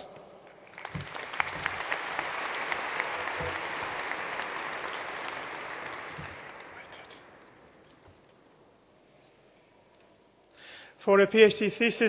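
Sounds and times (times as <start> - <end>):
audience applauding: 0.6 - 7.6.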